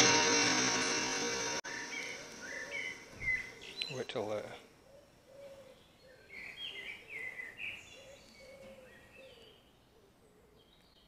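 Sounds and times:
faint bird chirping: 1.7 - 11.0.

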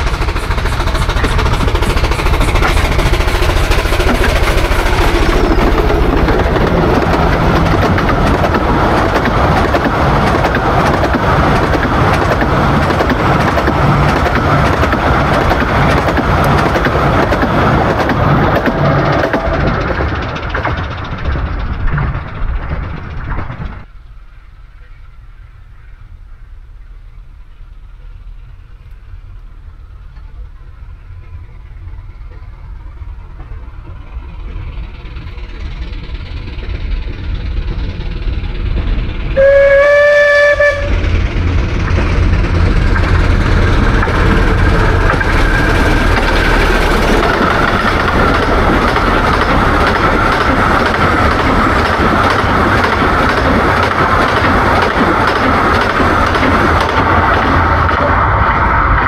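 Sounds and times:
carriages rumbling over track: 0.0 - 59.0
steam locomotive running: 0.0 - 59.0
steam whistle blast: 39.4 - 41.0.

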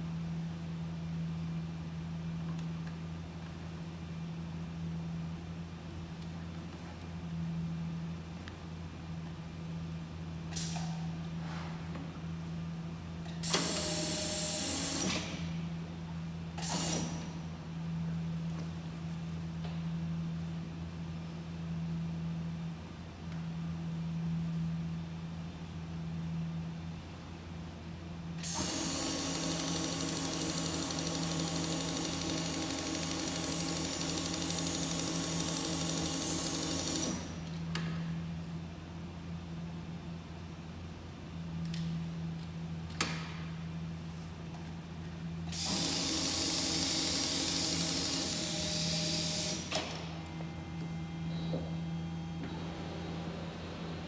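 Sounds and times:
steady motor hum: 0.0 - 54.0
industrial sewing machine running: 28.4 - 37.1, 45.6 - 49.6.

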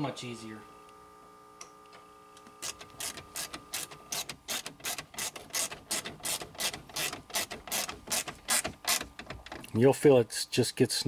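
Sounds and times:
ratchet clicking: 2.6 - 9.7.

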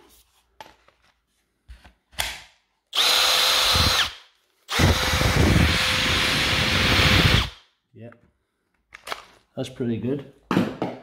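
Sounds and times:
cordless drill whining: 2.9 - 7.7.

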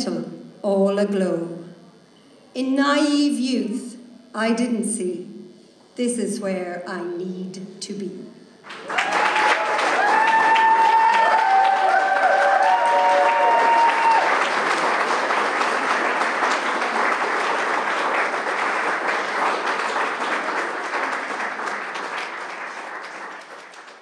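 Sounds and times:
audience applauding: 8.6 - 24.0.

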